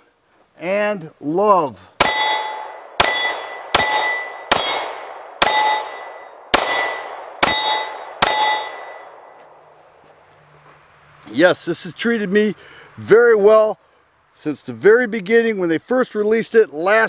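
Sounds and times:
pistol shots: 0:02.0 - 0:09.3
steel target clanging: 0:02.0 - 0:09.3.

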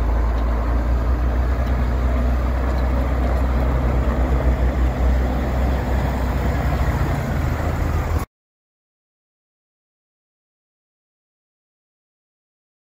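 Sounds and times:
diesel truck engine idling: 0:00.0 - 0:08.2.

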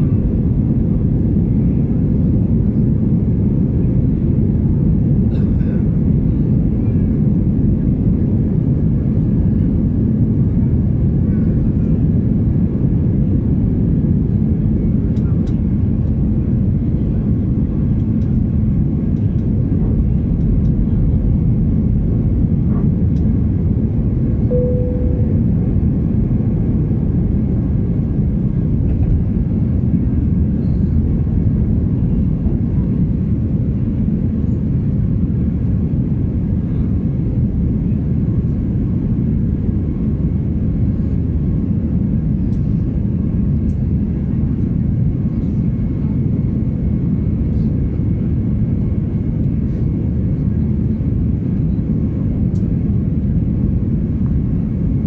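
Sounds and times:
jet engine roar in cabin: 0:00.0 - 0:55.0
single tone: 0:24.5 - 0:26.1.

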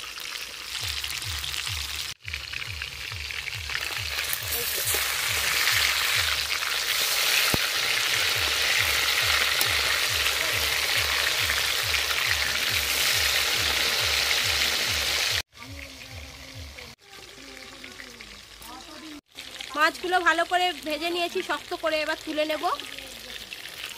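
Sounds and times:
fish sizzling in hot oil: 0:00.0 - 0:23.9
metal spatula stirring: 0:04.2 - 0:13.8.

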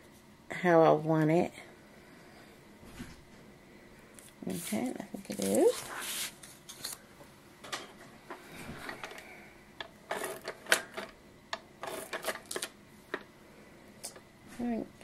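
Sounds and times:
paper rustling: 0:04.6 - 0:07.0.

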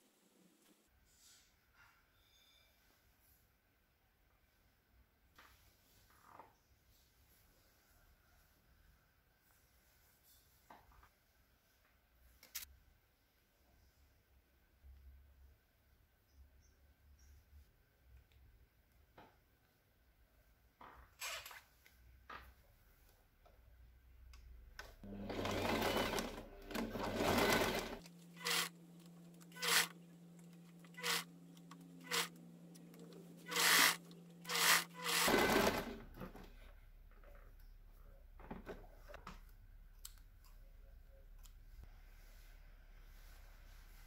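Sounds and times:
sewing machine stitching: 0:25.0 - 0:30.0, 0:30.6 - 0:36.1.

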